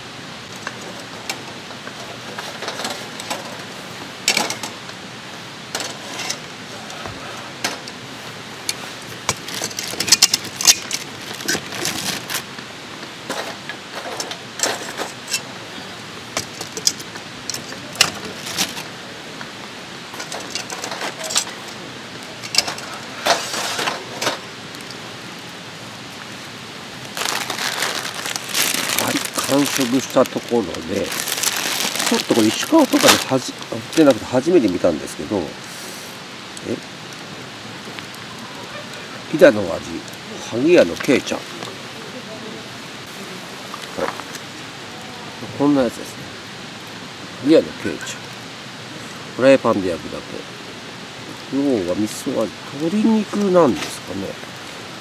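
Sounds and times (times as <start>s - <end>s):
wood fire crackling and popping: 0.0s - 55.0s
loud rustling: 5.7s - 19.0s, 26.3s - 34.3s.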